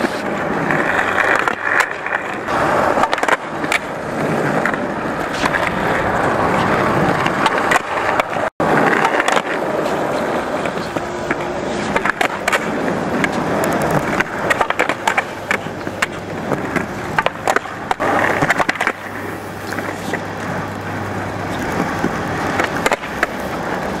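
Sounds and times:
skateboard clacks: 0.0s - 24.0s
skateboard wheels rolling on concrete: 0.0s - 24.0s.

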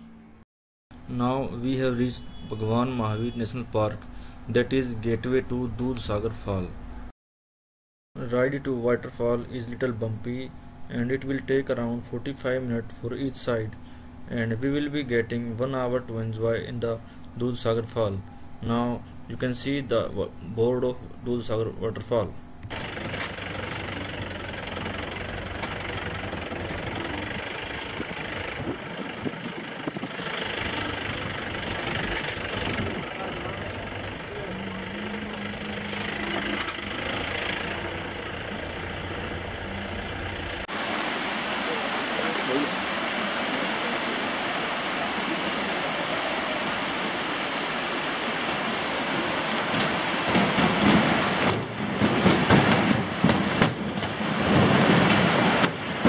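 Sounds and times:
road noise: 0.0s - 7.1s, 8.2s - 56.0s
vehicle engine hum: 9.1s - 56.0s
stream rushing over rocks: 40.7s - 56.0s
knocks and rattles: 49.7s - 56.0s.

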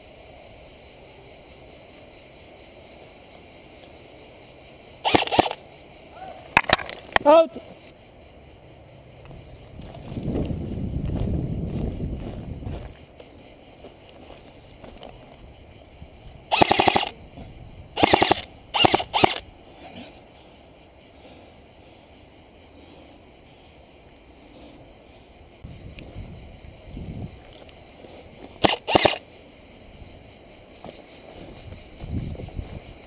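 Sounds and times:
airsoft rifle full-auto bursts: 5.0s - 5.6s, 16.5s - 17.2s, 18.0s - 19.4s, 28.6s - 29.2s
running footsteps: 9.7s - 15.3s.

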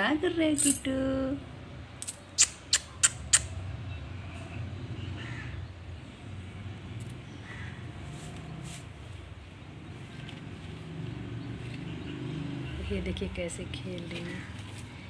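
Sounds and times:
sharp clicks: 2.0s - 3.5s.

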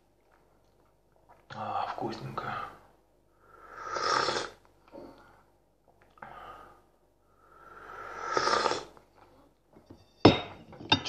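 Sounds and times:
person slurping tea: 3.6s - 4.6s, 7.7s - 9.0s.

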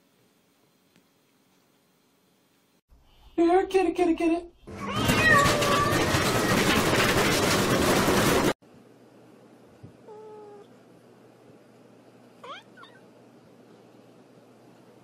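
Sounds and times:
loud harsh noise: 4.8s - 8.6s
kitten meowing: 12.4s - 13.0s.

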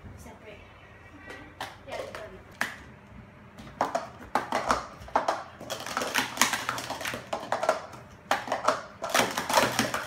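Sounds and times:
plastic cups clacking: 1.3s - 2.9s, 3.6s - 10.0s.

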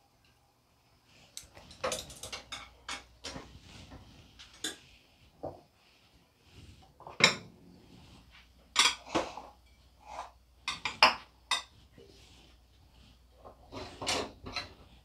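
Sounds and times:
utensils clinking against dishes: 1.4s - 3.4s, 8.7s - 11.8s.

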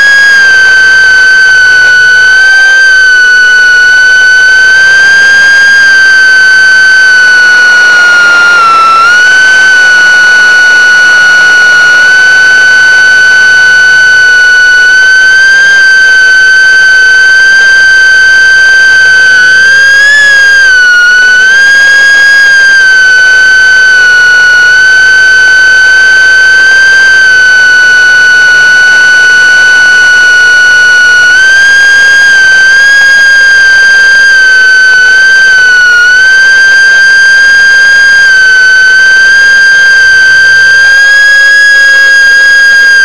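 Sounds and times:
drone propellers whining: 7.4s - 10.1s.

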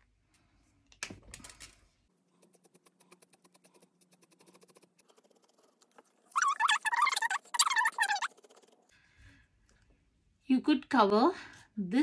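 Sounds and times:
marker scratching on paper: 2.3s - 8.8s.

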